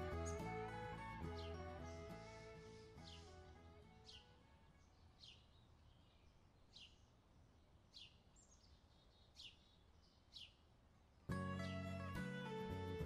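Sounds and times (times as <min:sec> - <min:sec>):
guitar music: 0:00.0 - 0:04.4, 0:11.3 - 0:13.0
faint bird chirps: 0:00.0 - 0:12.3.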